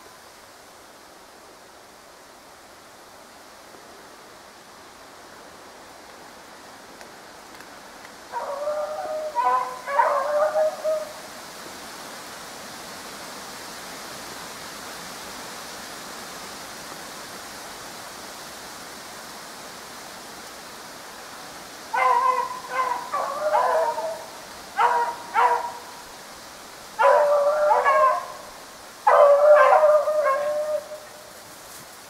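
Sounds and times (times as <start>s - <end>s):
steady hiss: 0.0s - 32.0s
hounds baying: 8.3s - 11.1s, 21.9s - 25.9s, 27.0s - 31.1s.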